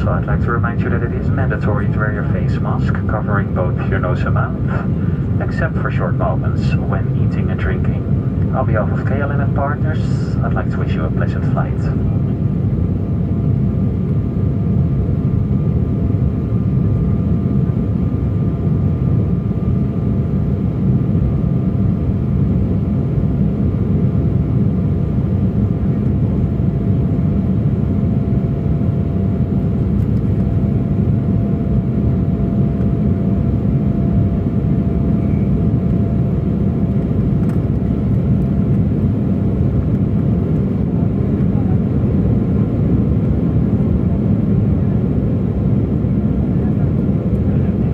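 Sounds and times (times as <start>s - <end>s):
faint steady whine: 0.0s - 47.9s
jet engine cabin rumble: 0.0s - 47.9s.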